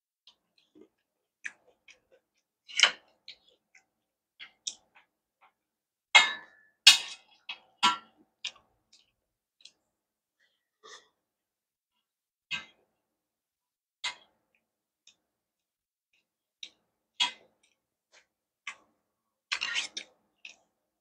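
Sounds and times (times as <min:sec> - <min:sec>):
chewing and mouth sounds: 0:00.6 - 0:02.5.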